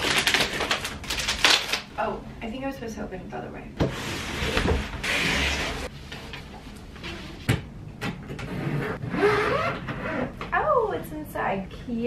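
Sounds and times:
cardboard scraping: 0:03.9 - 0:05.9.

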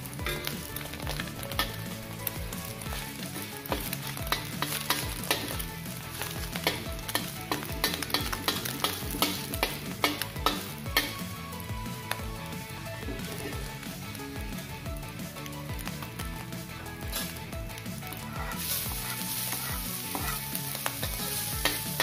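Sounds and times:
egg sizzling in oil: 0:00.0 - 0:12.3, 0:17.1 - 0:22.0
metal spatula scraping a wok: 0:00.2 - 0:11.2, 0:18.2 - 0:22.0.

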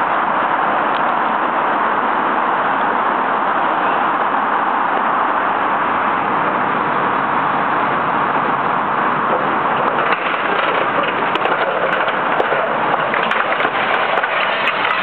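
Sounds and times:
roof cracking and crunching: 0:09.2 - 0:15.0.

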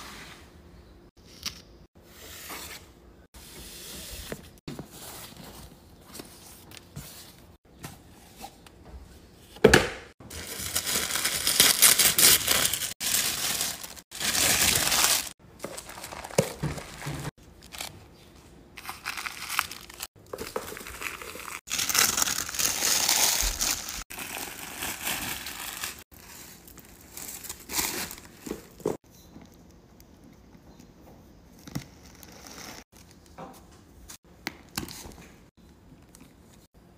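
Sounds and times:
tissue paper crinkling: 0:10.4 - 0:17.9, 0:18.8 - 0:20.1, 0:20.7 - 0:28.2.

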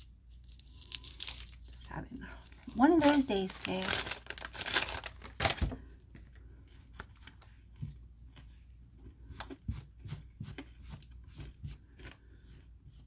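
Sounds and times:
cards rustling: 0:02.4 - 0:07.8.

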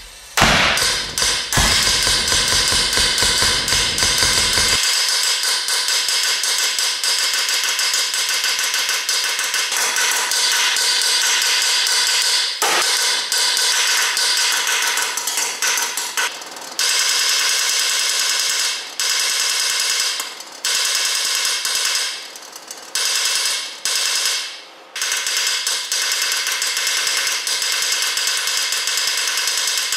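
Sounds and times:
pulse jet engine firing: 0:00.0 - 0:04.8.

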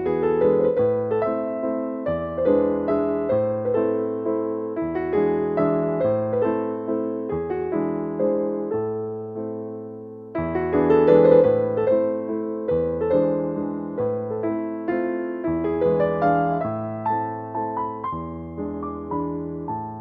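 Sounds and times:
gentle piano music: 0:00.0 - 0:20.0.

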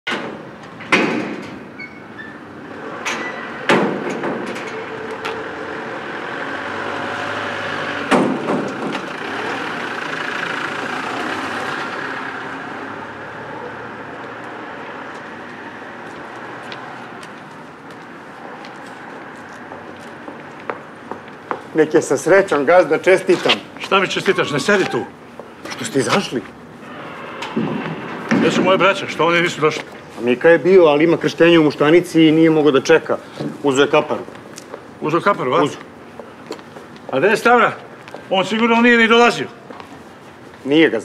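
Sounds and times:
metal gate clanking: 0:00.1 - 0:05.4
van driving past: 0:02.6 - 0:21.2.

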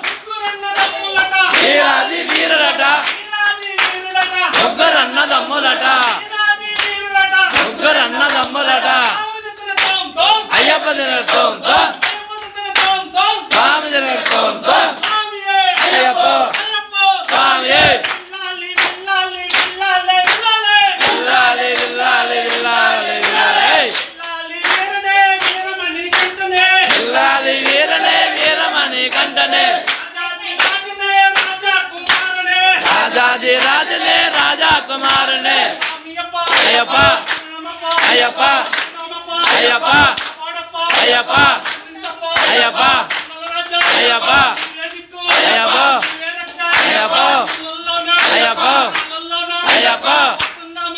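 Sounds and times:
hand-clapping: 0:00.0 - 0:50.9
men singing a devotional chant: 0:00.0 - 0:50.9.

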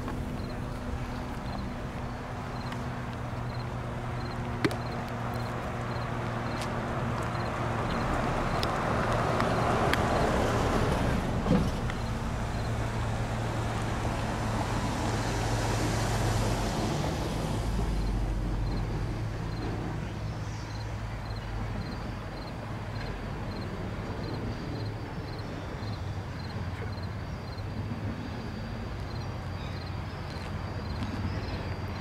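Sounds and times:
steady low hum: 0:00.0 - 0:15.6
cars passing: 0:00.0 - 0:32.0.

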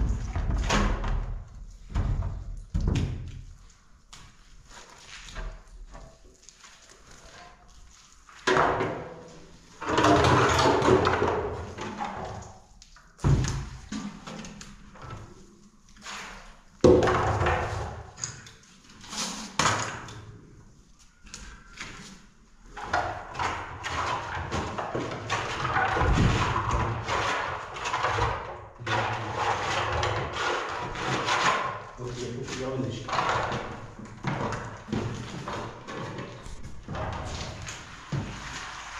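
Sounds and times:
trowels scraping plaster: 0:23.5 - 0:32.4.

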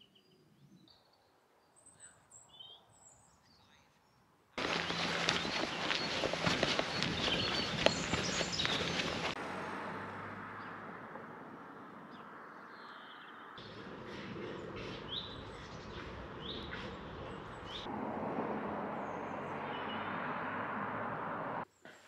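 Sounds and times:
steady rushing background: 0:04.6 - 0:09.4.

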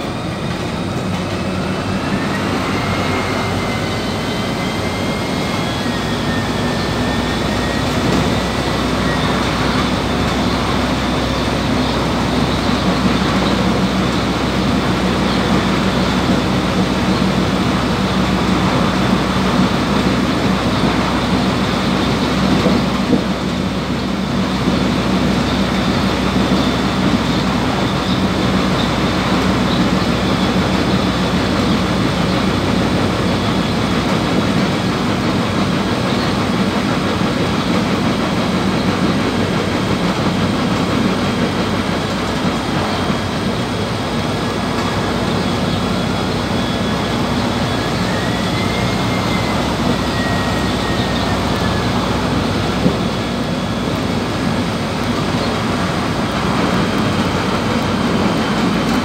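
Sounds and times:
bus engine drone: 0:00.0 - 0:59.0
road and body rumble: 0:00.0 - 0:59.0
faint high whine: 0:00.1 - 0:14.1, 0:44.5 - 0:56.4.

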